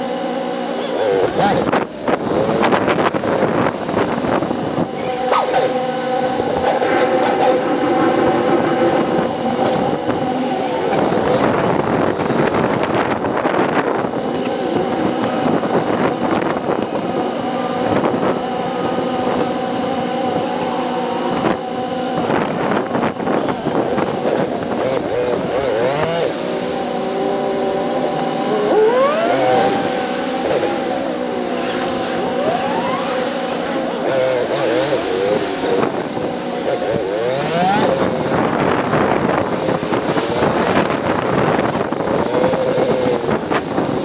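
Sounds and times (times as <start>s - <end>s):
motorcycle engine running: 0.0s - 44.0s
rushing air: 1.6s - 14.2s.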